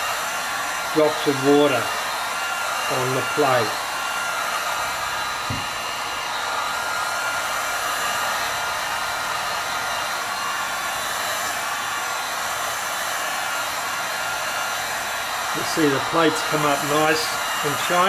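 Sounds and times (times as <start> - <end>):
hot air gun blowing: 0.0 - 18.0
low knock: 5.5 - 5.8.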